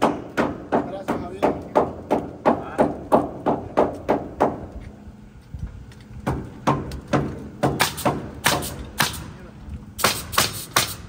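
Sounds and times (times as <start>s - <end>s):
hammer striking nails into wood: 0.0s - 4.6s, 6.2s - 9.2s, 10.0s - 11.0s.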